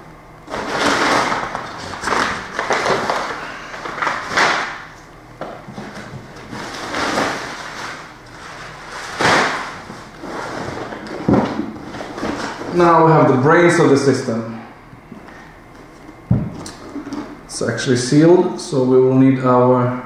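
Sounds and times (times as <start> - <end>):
packing paper rustling and crackling: 0.5 - 12.9.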